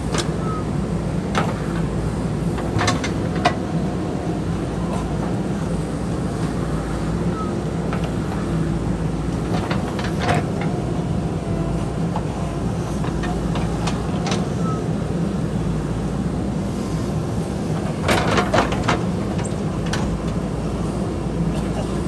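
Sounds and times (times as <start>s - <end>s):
diesel engine running: 0.0s - 22.0s
digger bucket knocking and clanking: 17.8s - 20.4s.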